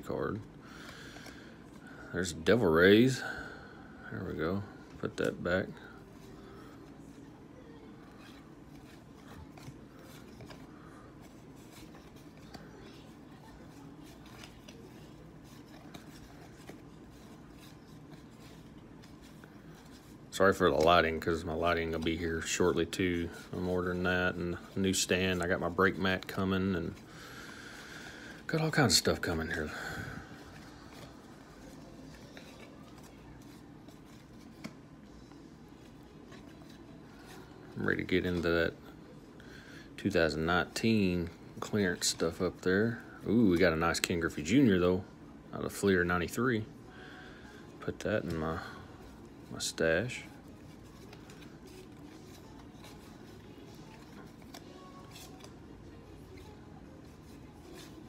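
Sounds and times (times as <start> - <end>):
low steady hum: 0.0 - 58.0
cards rustling: 0.3 - 3.4, 4.1 - 45.1, 45.7 - 58.0
cards sliding and flicking: 8.1 - 22.5, 50.4 - 58.0.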